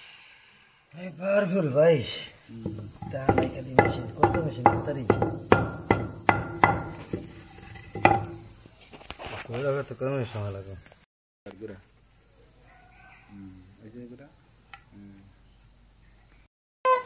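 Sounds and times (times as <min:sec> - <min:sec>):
insects droning: 0:00.0 - 0:17.0
hammer blows: 0:02.5 - 0:08.6.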